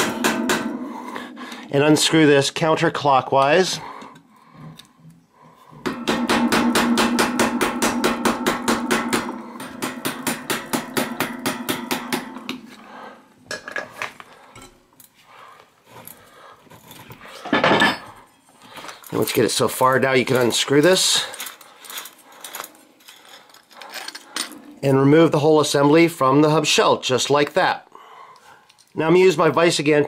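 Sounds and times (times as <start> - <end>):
small handling sounds: 18.3 - 24.6, 28.4 - 29.0.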